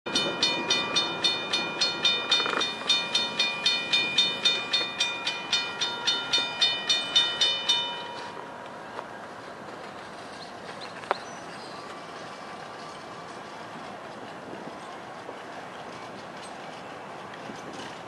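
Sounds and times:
railroad crossing bell ringing: 0:00.1 - 0:09.0.

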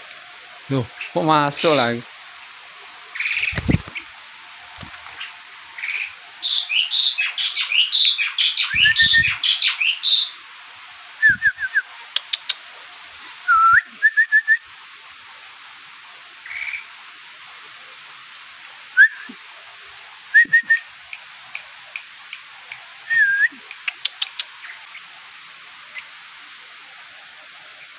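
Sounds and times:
bulbul whistled chirps: 0:06.5 - 0:10.3, 0:11.2 - 0:11.9, 0:13.5 - 0:14.6, 0:19.0 - 0:19.4, 0:20.3 - 0:20.9, 0:23.0 - 0:23.6.

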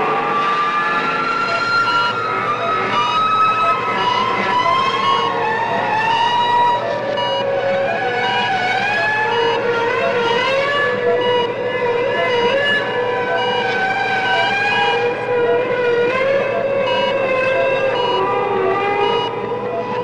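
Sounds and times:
wavering siren-like electronic tones: 0:00.0 - 0:20.0
short high beeps: 0:16.5 - 0:19.9.

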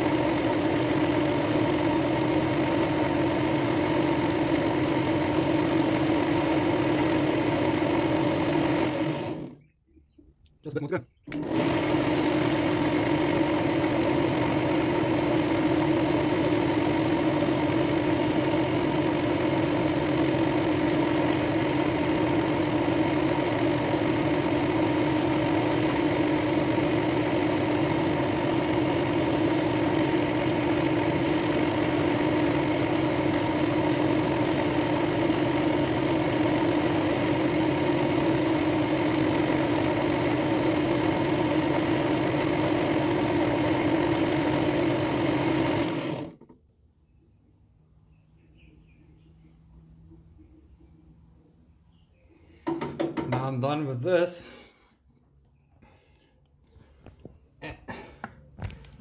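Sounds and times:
drill press motor humming: 0:00.0 - 0:09.6, 0:11.2 - 0:46.6.

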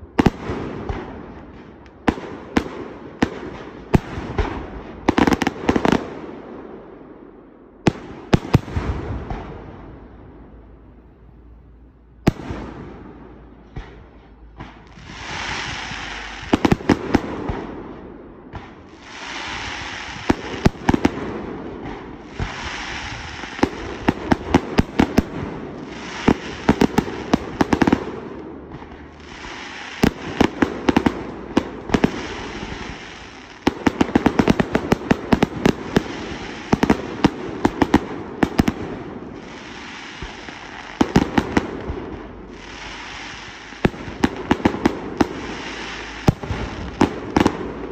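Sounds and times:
fireworks bangs: 0:00.0 - 0:10.8, 0:12.2 - 0:47.9
fireworks hiss: 0:13.7 - 0:17.6, 0:18.6 - 0:47.9.

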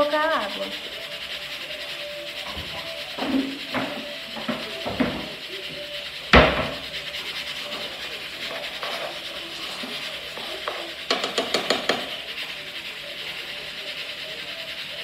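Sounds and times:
metal spoon scraping a pot: 0:00.0 - 0:15.0
spoon clacking against pot: 0:00.4 - 0:15.0.

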